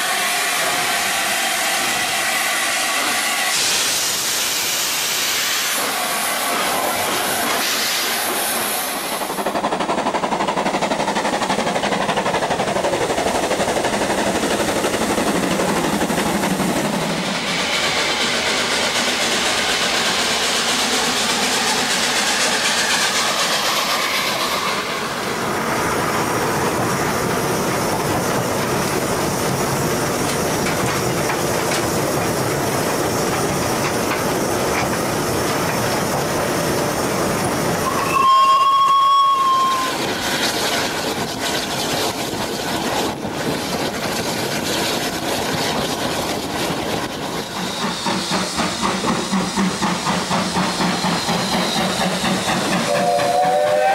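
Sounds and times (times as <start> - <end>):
steam locomotive running: 0.0 - 53.9
rail clatter: 5.2 - 53.9
steam whistle blast: 37.8 - 40.1, 52.8 - 53.9.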